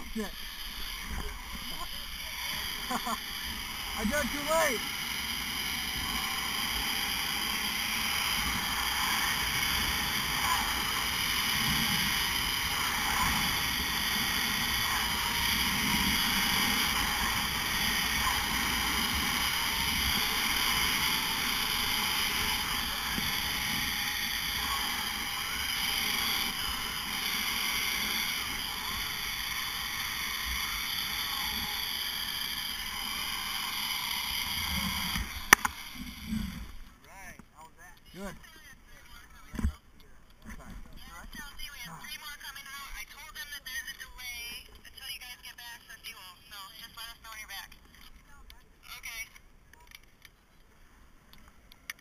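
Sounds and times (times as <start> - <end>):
zip line pulleys whirring: 0.0 - 36.9.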